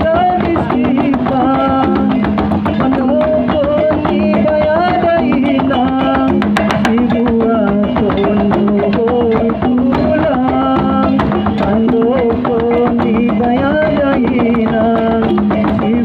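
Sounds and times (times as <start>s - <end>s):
drum ensemble playing: 0.0s - 16.0s.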